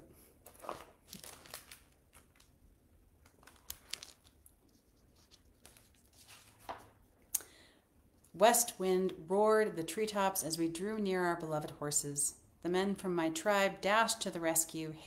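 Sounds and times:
book pages turning: 0:00.3 - 0:02.6, 0:03.2 - 0:07.1
paper crinkles and crackles: 0:00.4 - 0:07.0.

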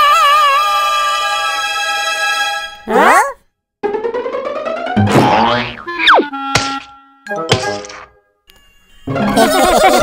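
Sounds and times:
music: 0:00.6 - 0:02.9, 0:03.8 - 0:10.0
sharp thunk: 0:06.6 - 0:06.9.

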